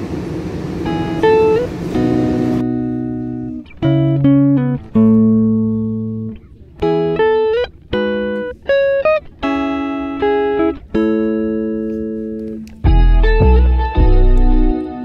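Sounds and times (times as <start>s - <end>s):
guitar plucking notes: 0.8s - 15.0s.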